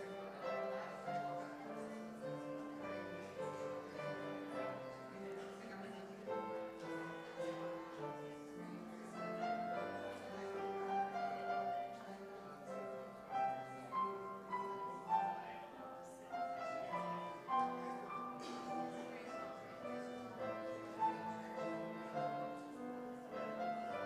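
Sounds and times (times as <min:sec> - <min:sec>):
grand piano melody over chords: 0:06.2 - 0:24.0.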